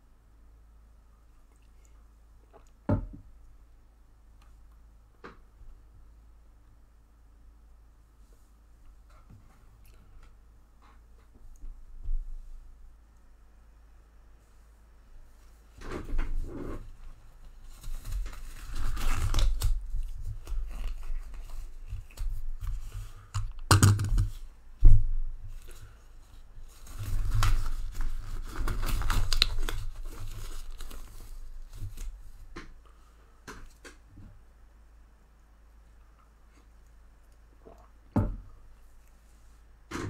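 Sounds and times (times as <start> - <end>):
gloves crinkling and stretching: 16.4 - 23.3, 25.5 - 32.5.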